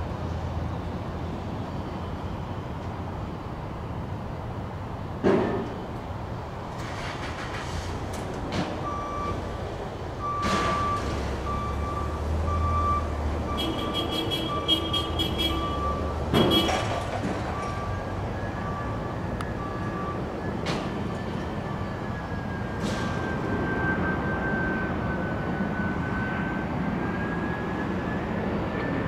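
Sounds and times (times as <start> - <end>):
reversing alarm beeping: 8.8 - 9.5, 10.2 - 29.0.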